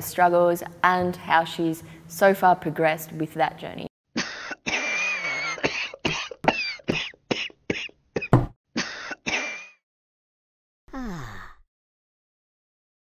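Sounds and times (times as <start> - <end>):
person coughing hard: 4.2 - 9.8.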